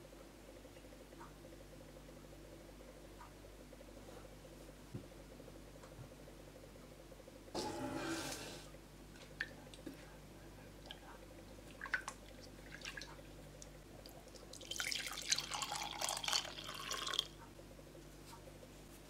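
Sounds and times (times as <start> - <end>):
liquid pouring into mug: 14.4 - 17.3.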